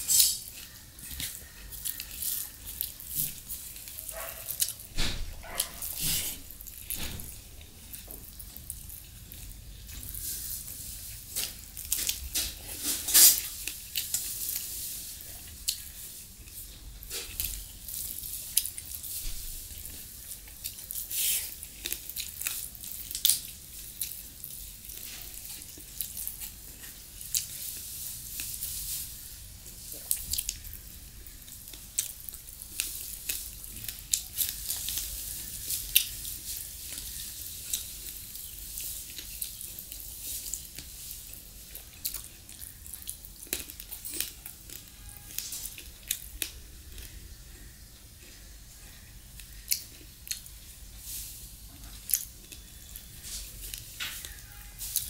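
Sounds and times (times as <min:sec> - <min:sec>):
wet squishing of food mixed by hand: 0:00.0 - 0:55.0
mouth chewing and lip smacks: 0:49.4 - 0:50.7.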